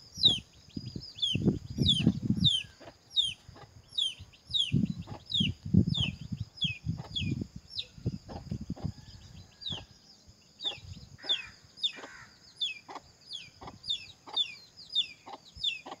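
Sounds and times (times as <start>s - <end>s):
wind on microphone: 0.0s - 11.5s
bird calling: 10.6s - 16.0s.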